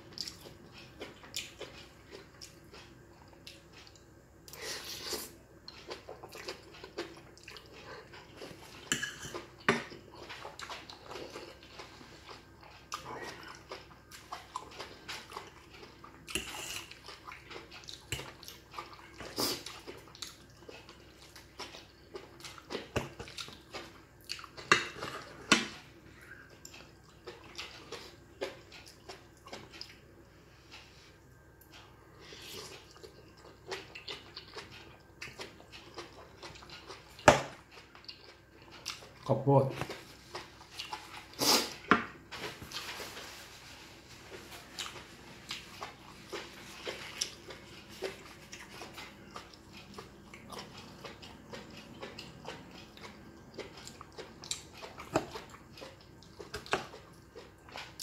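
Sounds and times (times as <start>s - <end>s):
noodles slurped and chewed: 39.9s - 58.0s.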